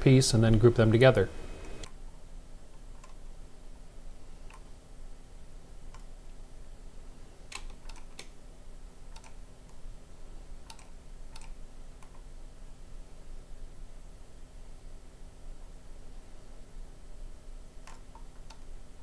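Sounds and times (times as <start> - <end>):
faint hum: 0.0 - 19.0
mouse and keyboard clicks: 2.8 - 3.2, 7.5 - 8.4, 9.1 - 9.8, 10.6 - 12.2, 17.8 - 18.6.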